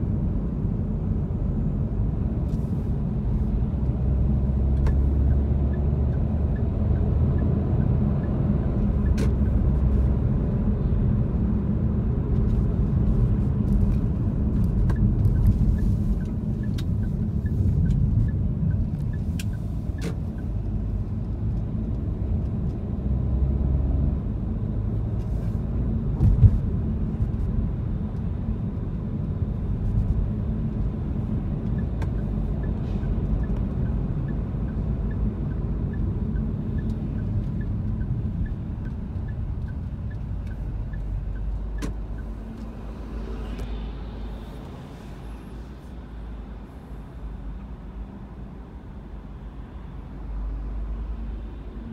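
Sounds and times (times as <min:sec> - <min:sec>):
car engine and tyre rumble: 0:00.0 - 0:51.9
short thump: 0:26.2 - 0:26.6.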